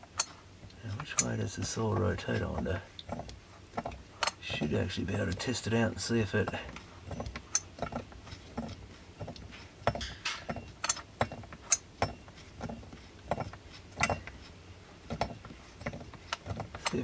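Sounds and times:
chainsaw parts clicking and knocking: 0:00.1 - 0:04.6.

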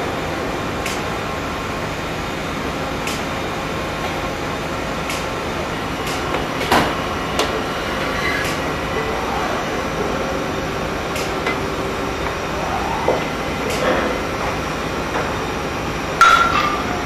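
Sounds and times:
pipe threading machine humming: 0:00.0 - 0:17.0
sharp metallic clicks: 0:03.0 - 0:03.4
metallic clank: 0:16.2 - 0:17.0.

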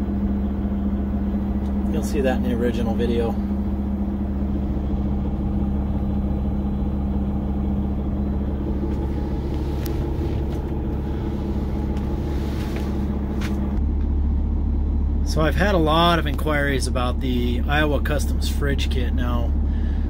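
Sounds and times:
diesel engine idling: 0:00.0 - 0:20.0.

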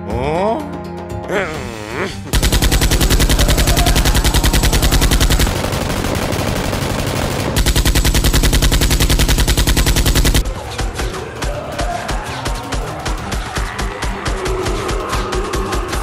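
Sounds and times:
automatic gunfire bursts: 0:02.3 - 0:10.4.

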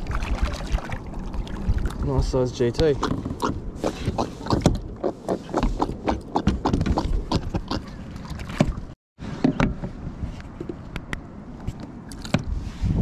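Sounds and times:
knocks and rattles on plastic kayak: 0:06.4 - 0:10.0.

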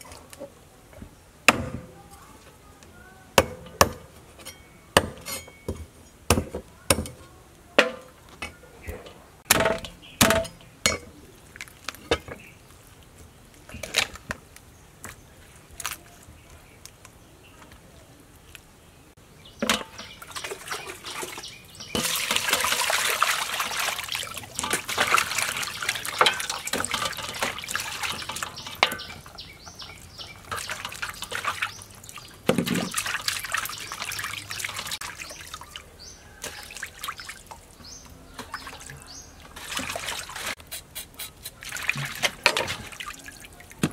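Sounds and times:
water sloshing in a metal pot: 0:03.3 - 0:07.2, 0:07.8 - 0:13.0, 0:19.5 - 0:40.6, 0:41.5 - 0:43.9.

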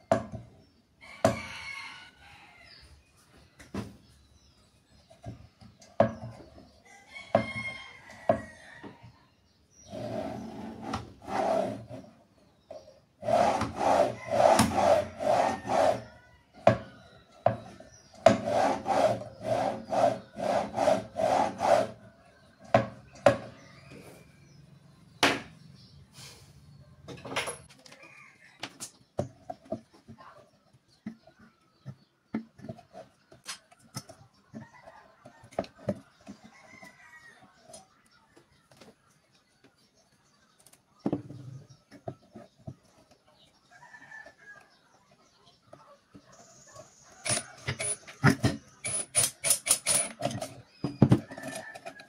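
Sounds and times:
rooster crowing: 0:01.0 - 0:02.7, 0:06.9 - 0:09.0
knocks of wood being handled: 0:05.2 - 0:06.6, 0:16.6 - 0:21.9, 0:22.6 - 0:23.6, 0:28.6 - 0:37.0
wood rubbing on wood: 0:09.9 - 0:12.2, 0:13.2 - 0:16.8, 0:17.5 - 0:22.0.

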